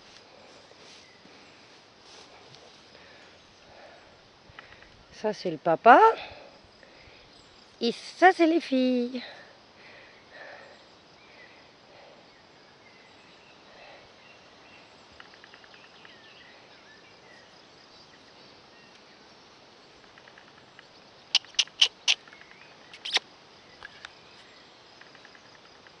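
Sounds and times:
faint bird chirps: 0:10.0 - 0:19.2, 0:20.1 - 0:26.0.

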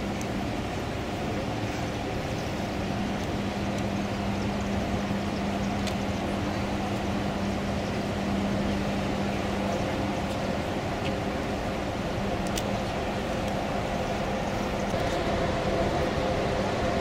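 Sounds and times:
ship engines droning: 0:00.0 - 0:17.0
even rushing noise: 0:06.4 - 0:17.0.

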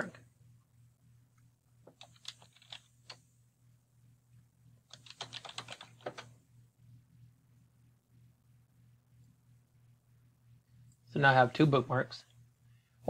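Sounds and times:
low steady hum: 0:00.0 - 0:13.0
keyboard typing: 0:01.9 - 0:03.2, 0:04.9 - 0:06.3.

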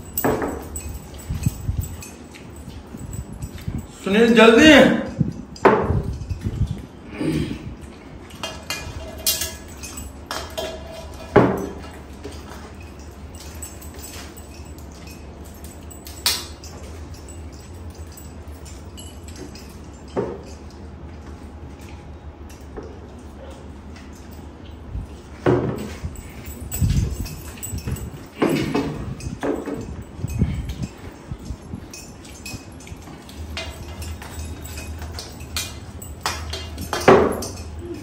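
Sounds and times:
dishes clinking on table: 0:08.4 - 0:12.8, 0:27.2 - 0:30.7, 0:31.9 - 0:38.0.

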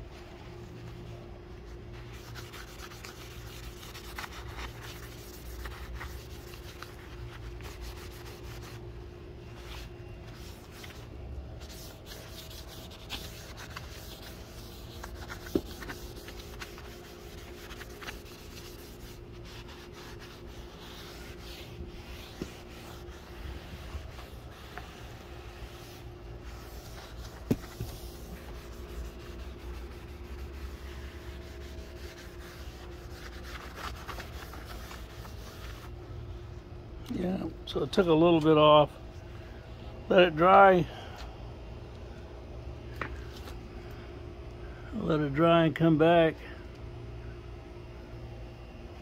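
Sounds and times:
steady low hum: 0:00.0 - 0:49.0
cloth rag wiping wood: 0:00.1 - 0:08.9, 0:09.5 - 0:36.0.

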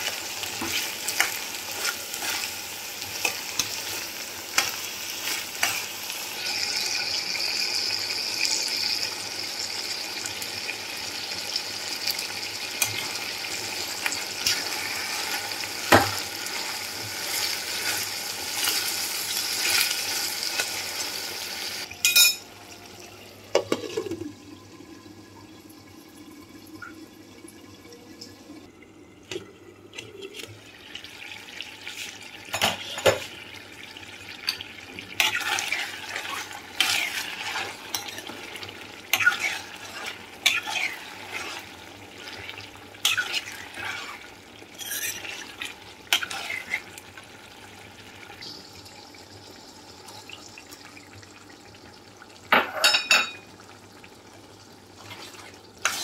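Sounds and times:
chicken sizzling: 0:00.0 - 0:26.8, 0:29.5 - 0:56.0
metal spoon scraping a pot: 0:39.1 - 0:41.7, 0:44.8 - 0:46.8.

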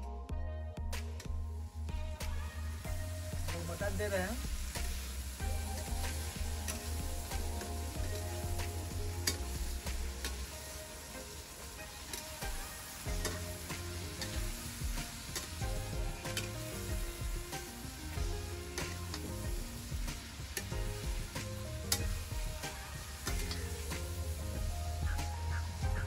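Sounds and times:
oil sizzling: 0:00.9 - 0:26.0
metal ladle scraping pan: 0:11.8 - 0:19.7.

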